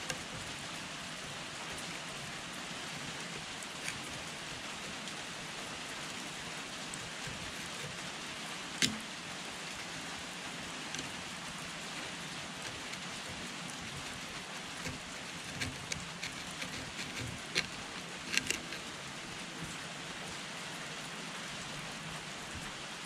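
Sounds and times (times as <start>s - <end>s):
faint ticks: 3.4s - 4.3s, 12.1s - 19.0s
screwdriver scraping metal: 3.8s - 4.1s, 6.9s - 8.0s, 8.8s - 9.1s, 10.8s - 11.3s, 12.0s - 19.7s
screwdriver blade clicking on metal: 8.8s - 9.0s, 13.9s - 18.9s.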